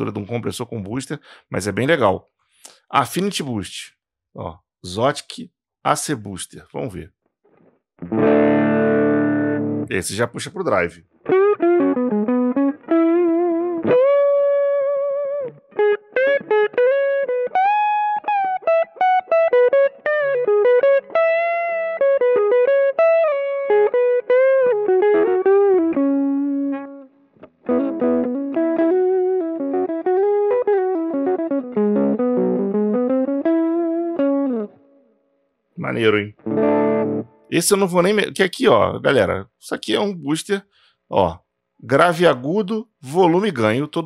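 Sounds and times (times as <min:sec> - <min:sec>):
overdriven electric guitar lead: 0:08.0 - 0:09.9, 0:11.3 - 0:34.8, 0:36.3 - 0:37.5.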